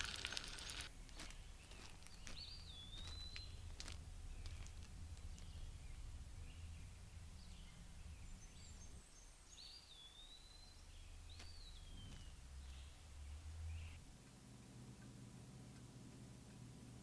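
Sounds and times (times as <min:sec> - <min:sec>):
low steady rumble: 0:00.0 - 0:09.3.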